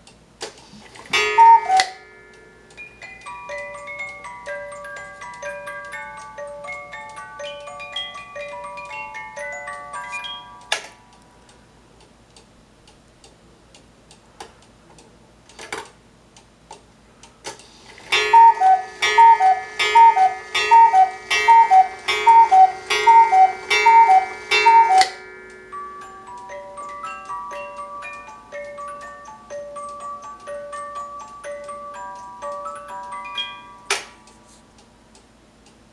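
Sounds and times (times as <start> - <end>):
two-note cuckoo calls: 1.1 - 2.1, 18.1 - 25.2
music box tune: 1.1 - 11.5, 18.1 - 34.6
clock ticking: 18.1 - 33.5.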